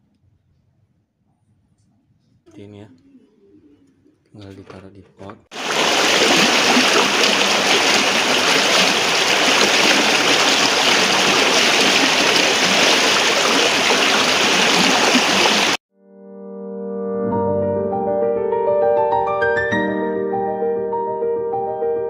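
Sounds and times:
stream rushing over stones: 5.5 - 15.8
soft piano music: 16.1 - 22.0.

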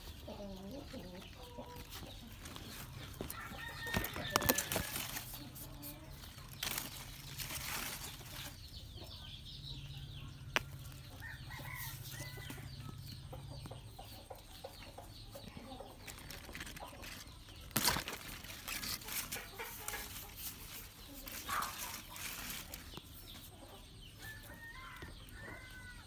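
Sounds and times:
chickens clucking: 0.0 - 26.0
radishes pulled from soil: 1.9 - 8.7, 16.0 - 23.5.

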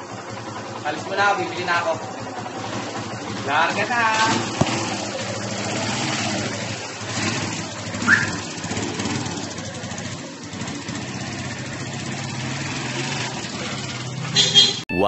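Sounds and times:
small motorcycle engine running: 0.0 - 14.8
high rising chirp: 8.0 - 8.5.

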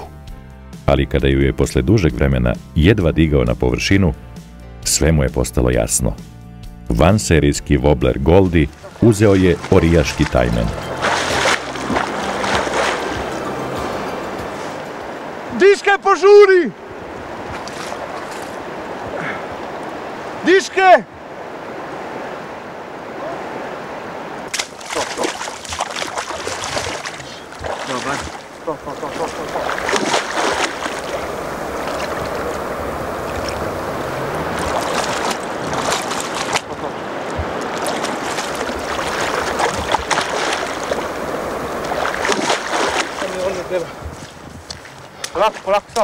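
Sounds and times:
river water rushing: 8.2 - 46.0
fish splashing at surface: 8.8 - 13.5, 24.5 - 43.6.

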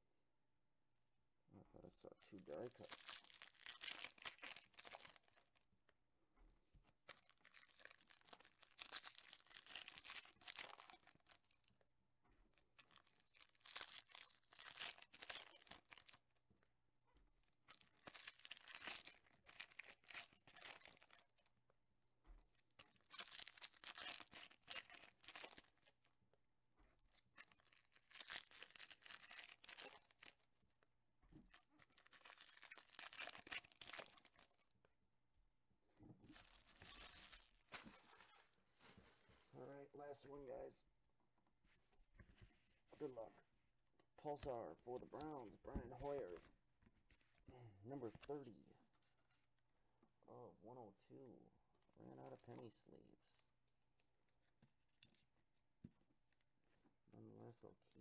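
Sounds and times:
foil wrappers tearing and crinkling: 2.7 - 5.5, 7.1 - 11.6, 12.8 - 16.2, 17.7 - 21.3, 22.8 - 26.0, 27.4 - 30.4, 31.5 - 34.6, 36.3 - 38.4.

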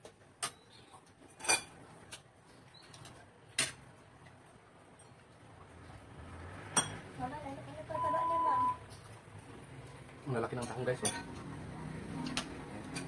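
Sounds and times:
spoon and dishes clinking: 1.3 - 1.8, 6.7 - 7.0, 10.6 - 11.4.

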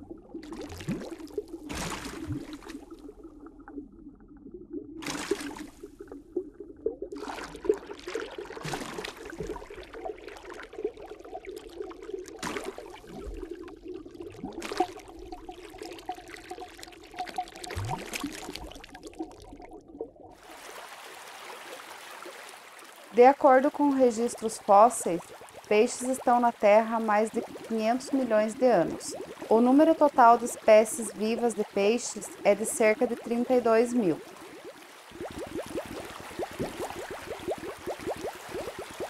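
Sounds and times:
aquarium water bubbling: 0.0 - 39.0
water splashing: 0.0 - 39.0.

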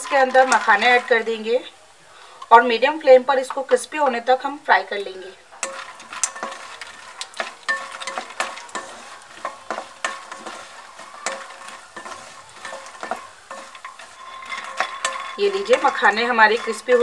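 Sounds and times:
spatula tapping and scraping pan: 0.0 - 1.5, 5.6 - 17.0
sizzling: 0.0 - 17.0.

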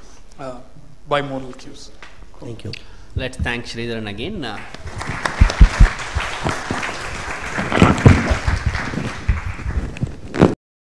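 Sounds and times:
audience applauding: 4.5 - 10.2
loud claps close to microphone: 4.5 - 10.6.

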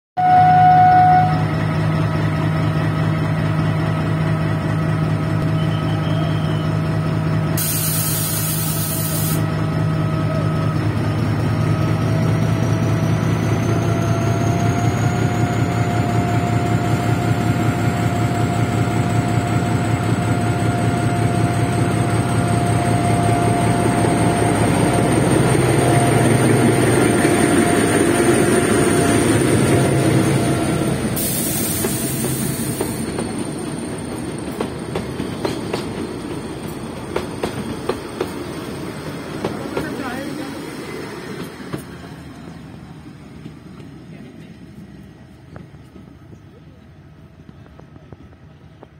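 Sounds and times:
diesel locomotive engine droning: 0.2 - 48.9
rhythmic train wheel clatter: 1.5 - 42.5
short hiss: 7.6 - 9.4.

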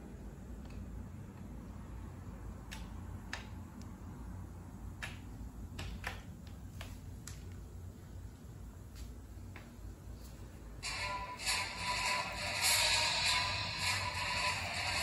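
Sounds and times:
low hum: 9.9 - 15.0.

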